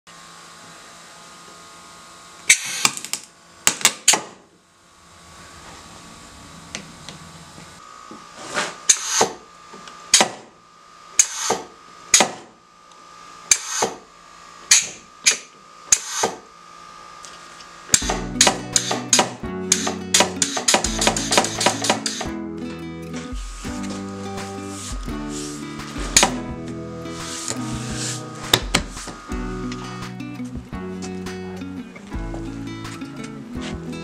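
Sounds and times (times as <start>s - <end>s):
pneumatic press air hisses: 2.5s - 3.0s, 8.4s - 9.5s, 11.2s - 12.4s, 13.5s - 14.0s, 14.7s - 16.5s, 17.9s - 22.3s.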